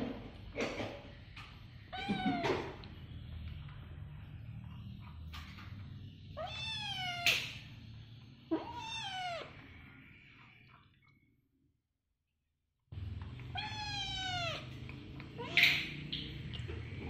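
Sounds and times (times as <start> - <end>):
kitten meowing: 6.4 - 7.4, 8.5 - 9.5, 13.5 - 14.6, 15.4 - 15.8.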